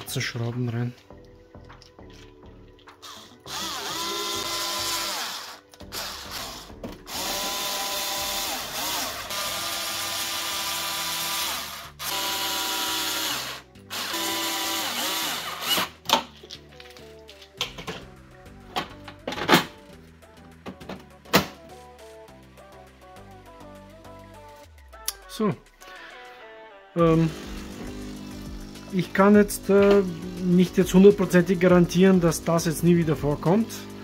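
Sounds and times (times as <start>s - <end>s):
cordless screwdriver motor whining: 3.0s - 15.9s.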